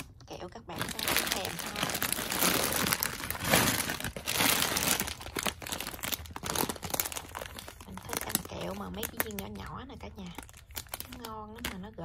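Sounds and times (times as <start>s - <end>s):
plastic candy wrappers crinkling: 0.0s - 12.0s.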